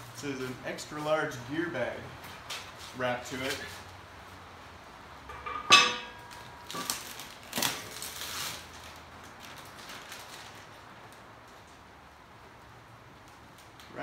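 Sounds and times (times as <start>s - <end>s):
metal cart clank: 5.3s - 7.0s
plastic wrap crinkling: 6.3s - 11.8s.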